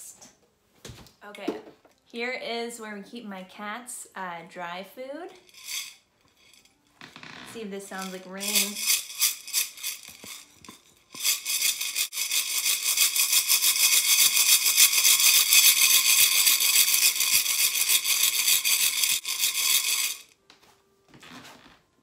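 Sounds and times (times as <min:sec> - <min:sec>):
kibble rattling in glass jar: 0:05.4 - 0:06.8, 0:07.9 - 0:20.3.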